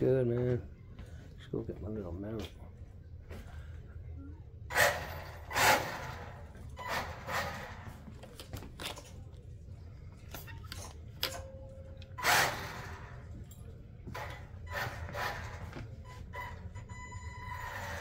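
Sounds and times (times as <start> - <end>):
rc car throttle bursts: 4.7 - 7.9, 12.2 - 13.2.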